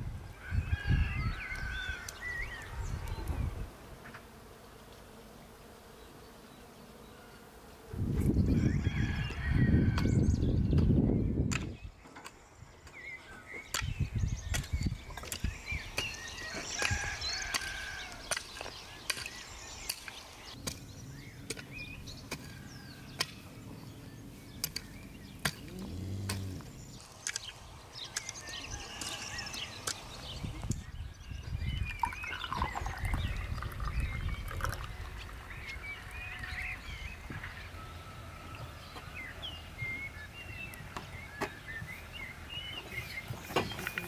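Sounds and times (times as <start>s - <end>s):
small birds chirping: 5.8s - 44.0s
hoe chopping into dry soil: 24.6s - 26.6s.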